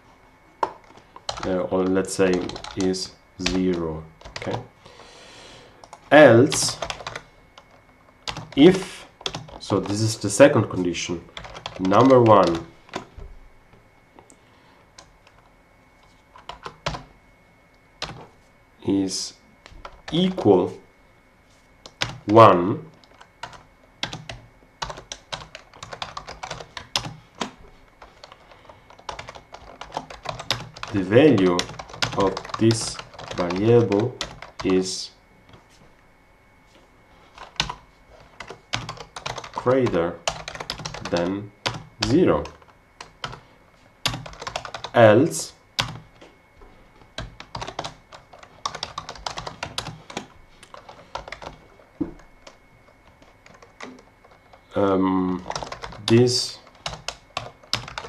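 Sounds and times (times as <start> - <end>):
keyboard typing: 0.6 - 4.6, 5.8 - 10.2, 11.4 - 13.1, 15.0 - 17.1, 18.0 - 18.3, 19.8 - 20.6, 21.8 - 22.3, 22.9 - 34.9, 37.3 - 43.4, 44.0 - 45.0, 45.8 - 46.2, 47.2 - 58.0.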